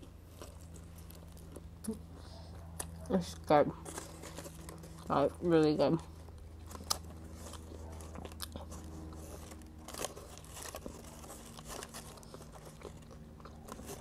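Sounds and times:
person chewing crusty bread: 0:00.0 - 0:14.0.

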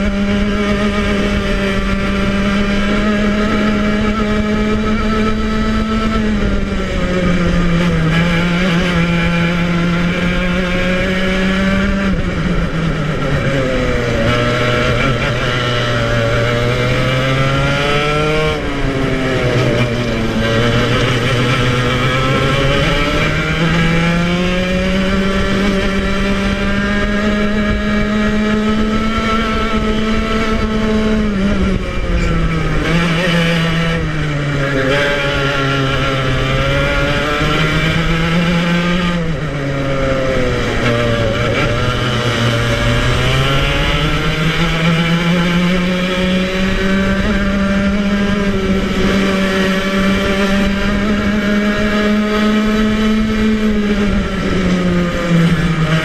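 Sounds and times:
two-stroke kart engine racing: 0:00.0 - 0:56.0.

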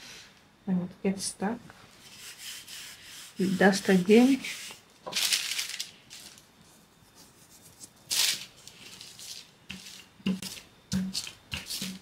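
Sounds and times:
rolling pin rubbing on paper: 0:02.0 - 0:04.8, 0:06.6 - 0:08.0, 0:08.7 - 0:12.0.

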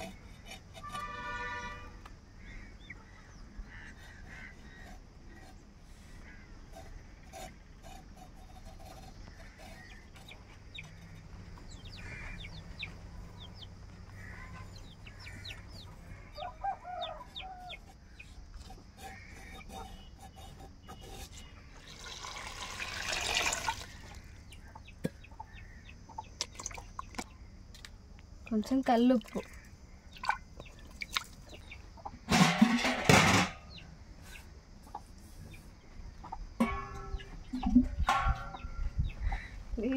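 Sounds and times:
hen clucking: 0:00.0 - 0:21.0, 0:23.6 - 0:27.3, 0:29.2 - 0:35.2, 0:36.1 - 0:39.9
chicks cheeping: 0:09.6 - 0:18.3, 0:24.5 - 0:27.0, 0:30.1 - 0:32.2, 0:37.2 - 0:39.5.

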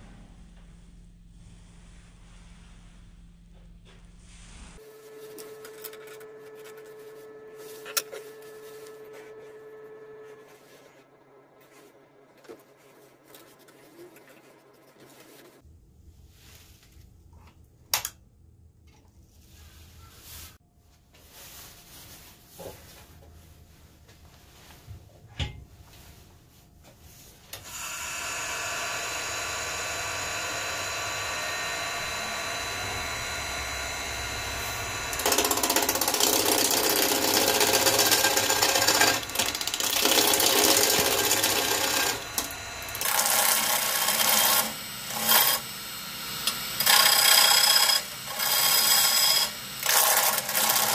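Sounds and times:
wood lathe running: 0:27.6 - 0:50.9
gouge scraping spinning log: 0:27.7 - 0:45.7, 0:46.4 - 0:50.9.

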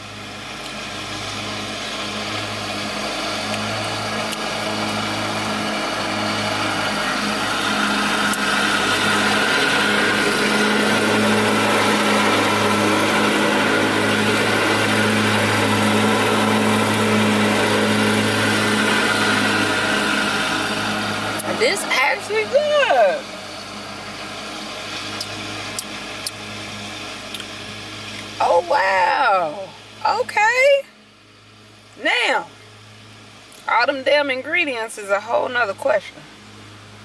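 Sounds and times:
lawn mower engine running: 0:00.0 - 0:37.0.

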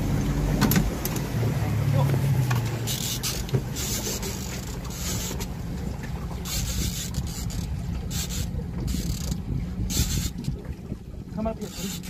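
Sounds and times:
outboard motor running: 0:00.0 - 0:12.0
wind gusts on microphone: 0:07.8 - 0:11.6.

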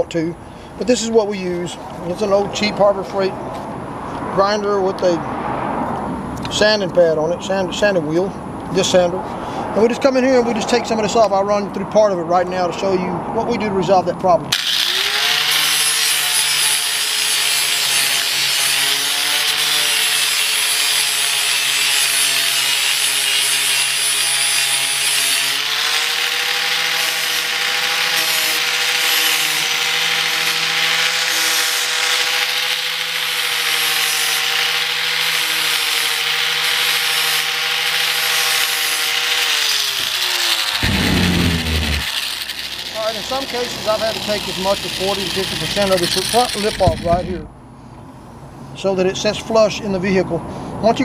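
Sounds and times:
angle grinder sanding plastic: 0:14.6 - 0:47.2.

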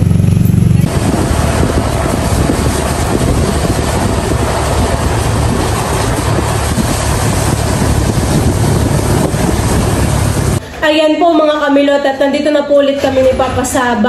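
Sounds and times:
vehicle running on wet road: 0:00.0 - 0:10.6
wind rushing on microphone: 0:00.0 - 0:10.6.

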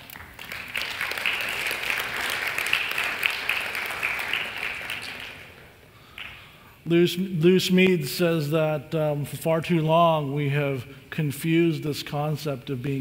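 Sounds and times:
congregation applauding: 0:00.0 - 0:06.5.

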